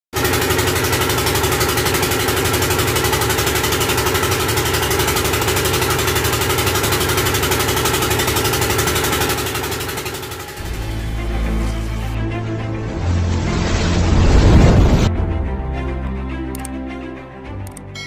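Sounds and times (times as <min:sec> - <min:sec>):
boat engine running: 0:00.2 - 0:13.9.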